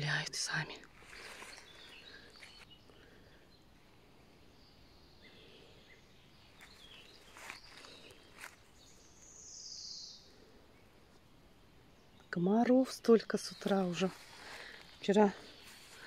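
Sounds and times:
distant birdsong chirps: 0.0s - 16.0s
soft rustles: 0.9s - 2.7s, 13.6s - 16.0s.

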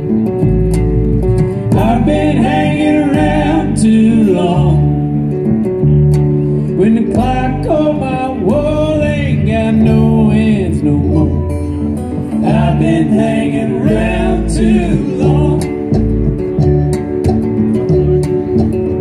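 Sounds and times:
acoustic guitar: 0.0s - 19.0s
drums: 0.0s - 19.0s
sliding lead melody: 0.0s - 19.0s
upright bass: 0.0s - 19.0s.

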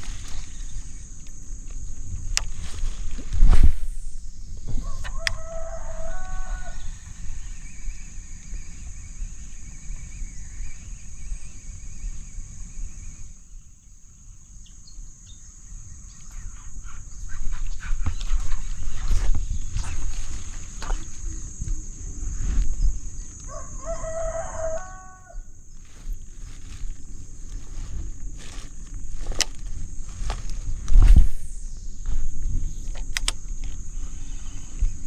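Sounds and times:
steady high hiss: 0.0s - 35.0s
rooster crowing: 4.7s - 7.0s, 23.4s - 25.6s
steady low rumble: 16.0s - 23.5s, 25.5s - 35.0s.

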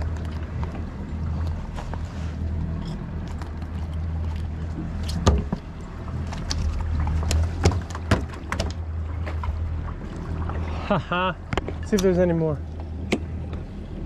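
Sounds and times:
outboard motors idling: 0.0s - 14.0s
knocks on boat: 5.2s - 5.7s, 7.2s - 9.4s.

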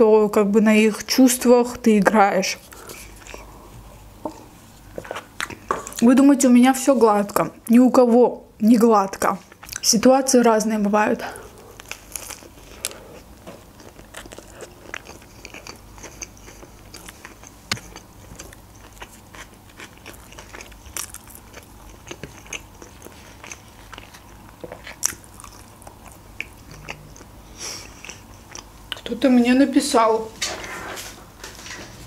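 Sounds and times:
wet chewing: 4.3s - 6.1s, 11.3s - 29.1s
sharp food crackles: 11.5s - 29.1s.

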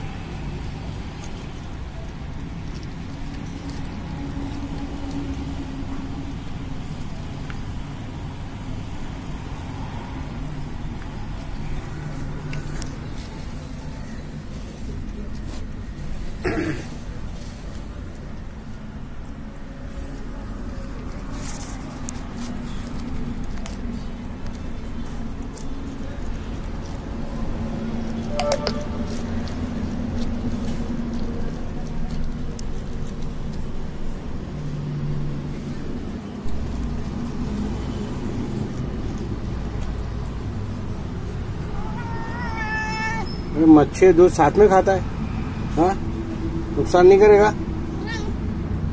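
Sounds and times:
low outdoor rumble: 0.0s - 48.9s
road traffic: 0.0s - 48.9s.

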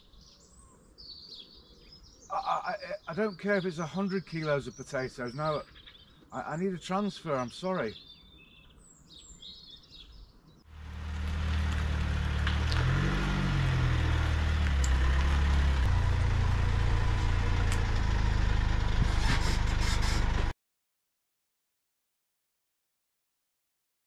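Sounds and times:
faint bird chirps: 0.0s - 10.6s
van engine idling: 10.8s - 20.5s.

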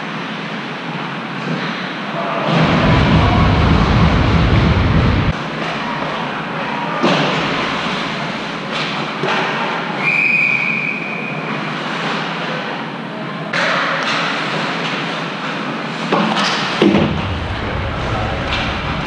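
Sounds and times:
referee's whistle: 10.0s - 11.4s.

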